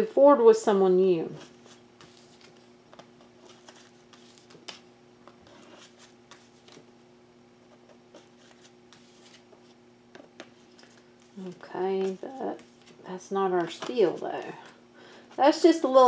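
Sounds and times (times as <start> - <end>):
faint steady hum: 0.0 - 16.0
cards rustling and tapping: 1.4 - 6.9, 7.8 - 14.8.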